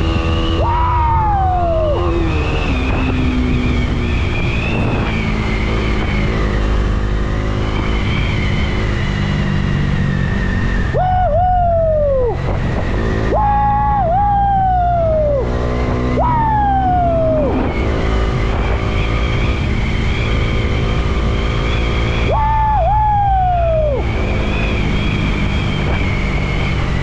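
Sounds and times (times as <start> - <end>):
motorcycle running: 0.0 - 27.0
wind rushing over microphone: 0.0 - 27.0
falling whistle-like tones: 1.1 - 6.4, 21.6 - 27.0.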